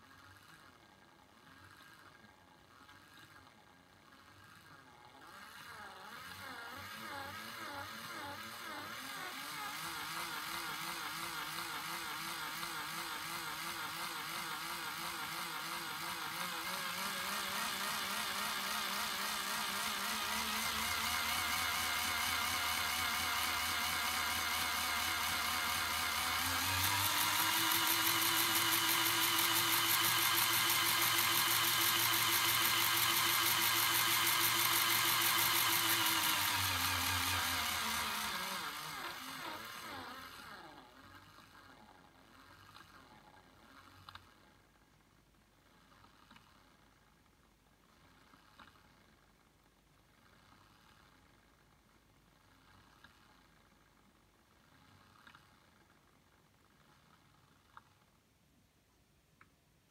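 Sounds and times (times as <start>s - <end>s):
electric motor whine: 4.4s - 40.9s.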